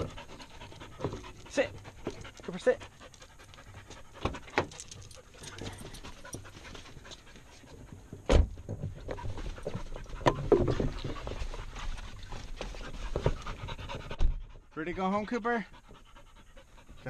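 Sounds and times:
dog panting: 0:00.0 - 0:08.2, 0:08.9 - 0:17.0
bumping and rustling: 0:03.7 - 0:14.5
heavy thump: 0:08.2 - 0:09.0.

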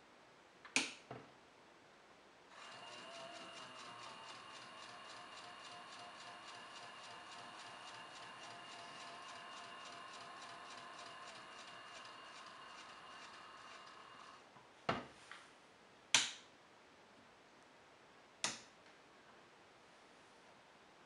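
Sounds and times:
small electric motor ticking: 0:02.5 - 0:14.4.

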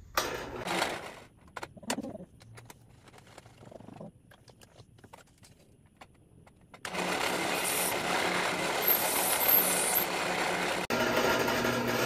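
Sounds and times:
small power tool motor running: 0:06.9 - 0:12.0.

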